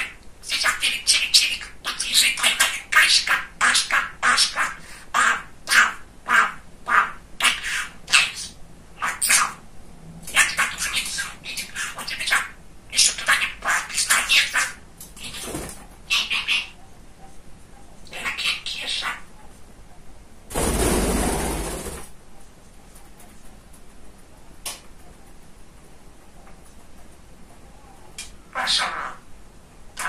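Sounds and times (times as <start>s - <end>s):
budgerigar chattering: 0.0s - 9.6s, 10.3s - 16.8s, 18.1s - 19.3s, 28.5s - 29.3s.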